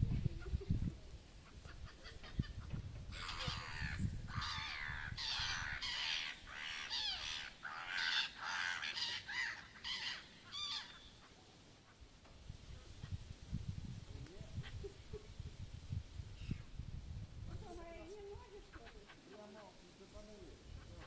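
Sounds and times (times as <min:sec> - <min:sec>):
gulls calling: 0:01.4 - 0:12.1.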